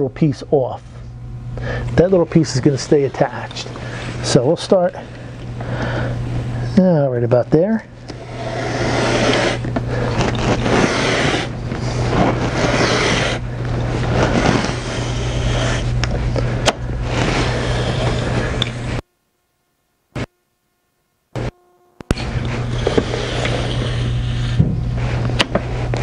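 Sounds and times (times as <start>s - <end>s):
cutter scraping along rail: 8.0s - 16.1s, 17.0s - 19.0s, 21.4s - 24.6s.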